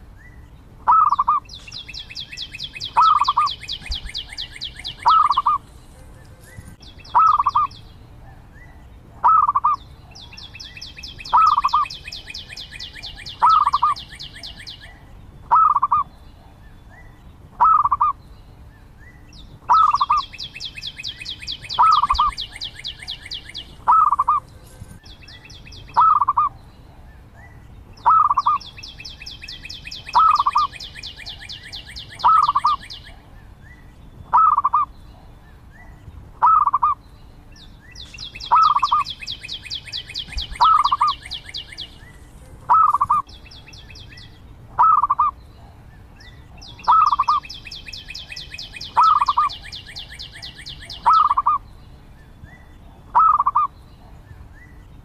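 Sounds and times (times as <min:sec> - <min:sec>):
dove cooing: 0:00.9 - 0:01.4, 0:03.0 - 0:07.7, 0:09.2 - 0:09.8, 0:13.0 - 0:16.1, 0:21.7 - 0:24.8, 0:28.0 - 0:28.6, 0:30.0 - 0:32.9, 0:34.3 - 0:34.9, 0:36.4 - 0:37.0, 0:38.4 - 0:39.1, 0:39.8 - 0:43.3, 0:44.8 - 0:45.3, 0:46.8 - 0:47.5, 0:48.9 - 0:49.5, 0:53.1 - 0:53.7.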